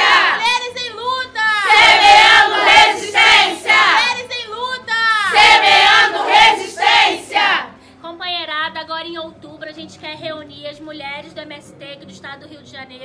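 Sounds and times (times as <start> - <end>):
women chanting in unison: 0.0 - 0.7, 1.4 - 4.3, 5.0 - 7.8.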